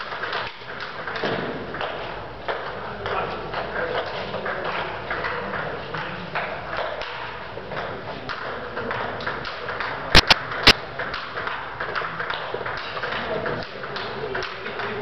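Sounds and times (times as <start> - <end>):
table-tennis ball clicking: 4.6 - 14.9
loud sharp knocks: 10.1 - 11.3.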